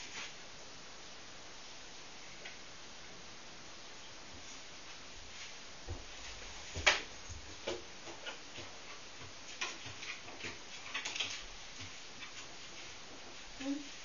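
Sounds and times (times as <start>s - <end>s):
footsteps on wooden floorboards: 5.8s - 10.6s
dog claws clicking on wooden floor: 7.6s - 12.4s.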